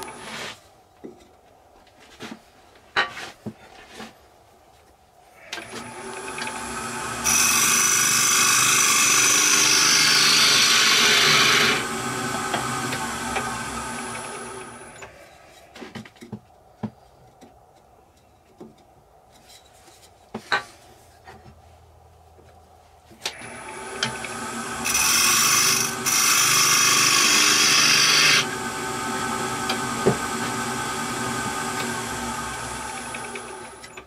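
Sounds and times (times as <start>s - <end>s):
turning tool scraping wood: 0.0s - 0.6s, 5.6s - 15.9s, 23.5s - 34.0s
wood lathe whining: 5.5s - 15.1s, 23.3s - 34.0s.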